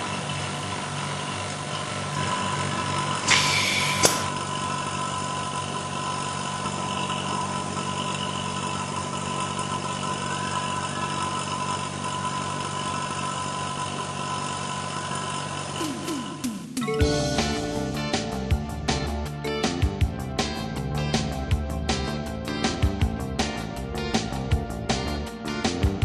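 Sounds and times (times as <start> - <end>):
vacuum pump humming: 0.0 - 19.3
loud hiss of air: 3.2 - 4.4
sharp click: 3.3 - 4.3.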